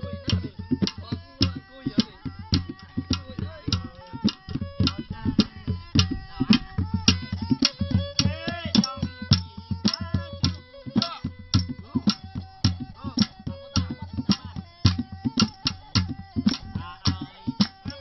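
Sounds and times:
bowed fiddle melody: 0:00.0 - 0:18.0
hand drum strokes: 0:00.0 - 0:18.0.

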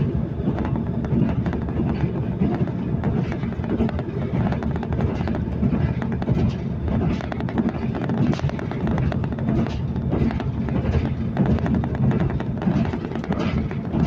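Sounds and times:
rattles and clicks: 0:00.0 - 0:14.0
train wheels rumbling on track: 0:00.0 - 0:14.0.

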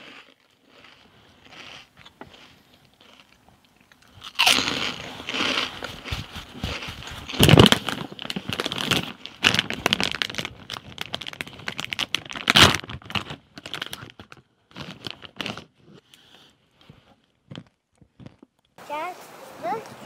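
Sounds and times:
plastic bag crinkling: 0:04.1 - 0:15.8.

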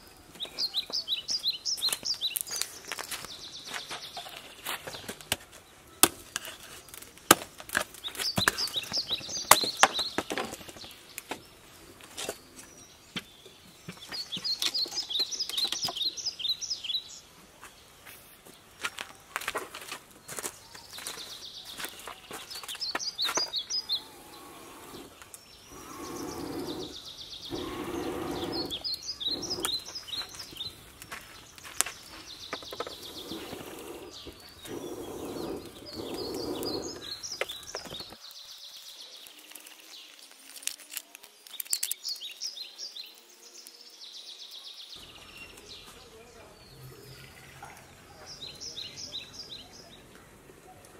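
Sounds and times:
small birds chirping: 0:00.0 - 0:50.9
wood fire crackling: 0:04.6 - 0:12.2, 0:19.4 - 0:41.9.

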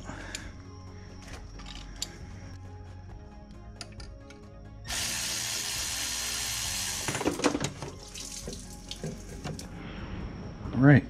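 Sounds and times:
metal tools clanking: 0:01.2 - 0:02.2.

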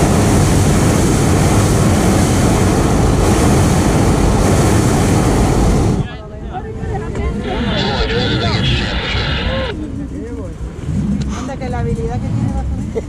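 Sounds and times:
propane burner blast: 0:00.0 - 0:06.1, 0:07.4 - 0:09.8.

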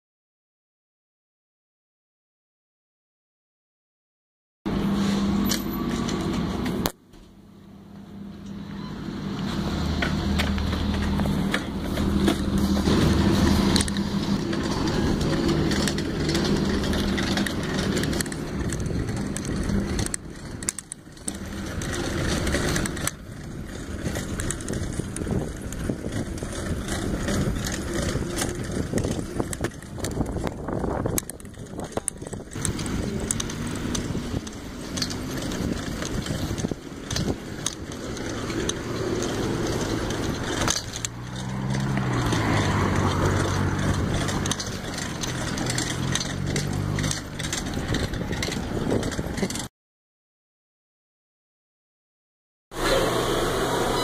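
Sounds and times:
bicycle tyre noise: 0:08.7 - 0:49.7
bicycle frame rattling and clicking: 0:10.0 - 0:49.7.

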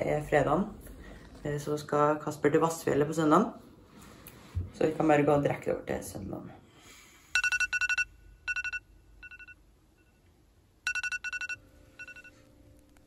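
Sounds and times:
alarm beeping: 0:07.4 - 0:10.2, 0:10.9 - 0:12.4.

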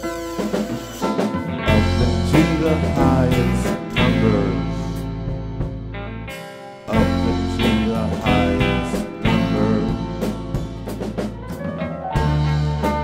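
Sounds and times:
drum kit: 0:00.0 - 0:13.0
guitar: 0:00.0 - 0:13.0
person singing: 0:01.6 - 0:05.0, 0:06.9 - 0:10.5.

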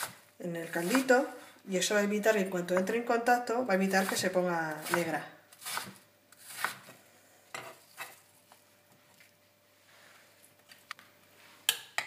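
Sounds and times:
knife chopping on wooden board: 0:04.8 - 0:06.9.

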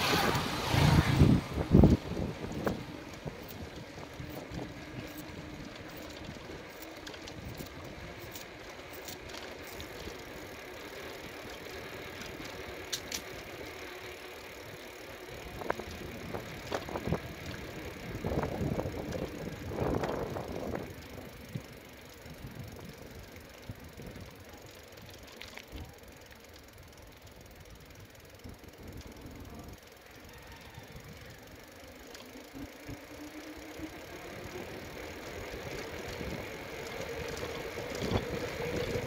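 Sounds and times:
tyre and wind noise: 0:00.0 - 0:13.5, 0:15.0 - 0:25.2, 0:32.4 - 0:39.0
bike rattling and clicking: 0:00.0 - 0:39.0.

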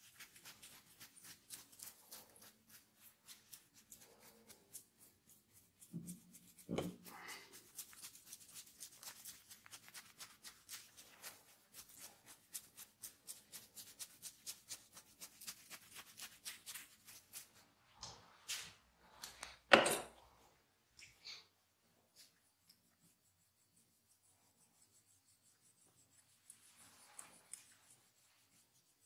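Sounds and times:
hair rustle: 0:00.0 - 0:18.8, 0:22.0 - 0:29.0
fingernails scratching hair: 0:22.7 - 0:29.0.

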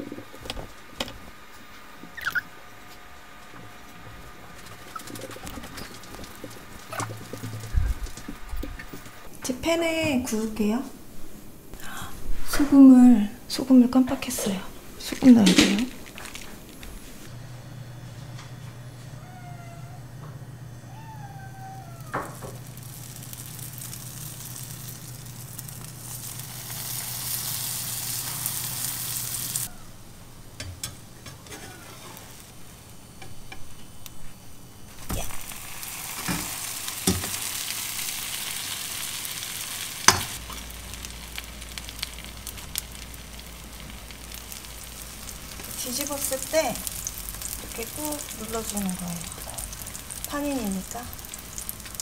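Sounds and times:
sandwiches sizzling in frying pan: 0:22.0 - 0:29.7, 0:34.9 - 0:52.0.

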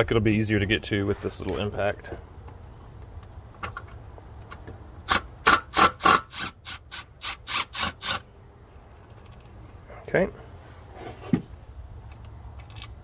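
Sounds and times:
impact wrench bursts: 0:05.0 - 0:08.3.

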